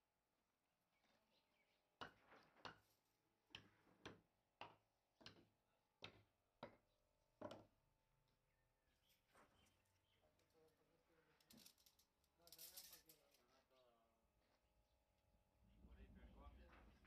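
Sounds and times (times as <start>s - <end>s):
hammer knocking wooden blocks: 3.5s - 7.8s.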